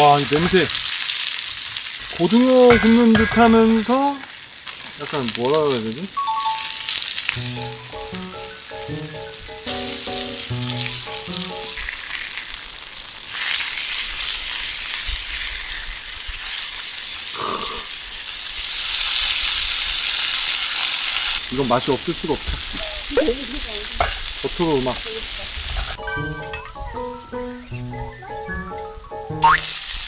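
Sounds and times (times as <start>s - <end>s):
fish sizzling in a frying pan: 0.0s - 26.0s, 29.4s - 30.0s
short tune of stepped notes: 6.2s - 11.8s, 26.0s - 29.7s.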